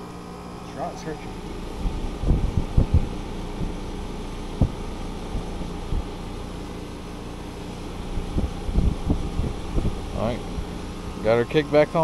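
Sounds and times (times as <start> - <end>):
air conditioner humming: 0.0 - 12.0
wind thumps on microphone: 1.7 - 3.9, 4.5 - 6.2, 8.1 - 10.7.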